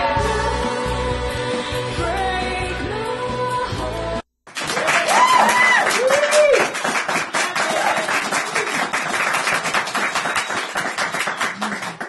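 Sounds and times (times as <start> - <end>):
crowd applauding: 4.5 - 12.0.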